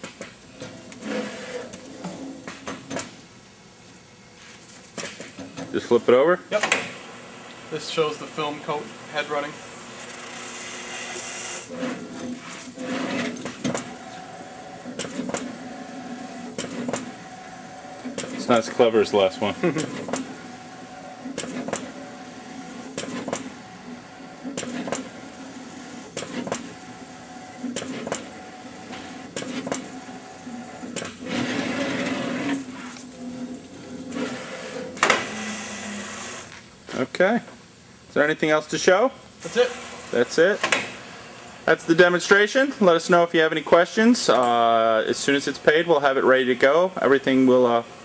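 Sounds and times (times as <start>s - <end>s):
machine motion system whirring: 0.6s - 3.1s, 5.4s - 36.5s.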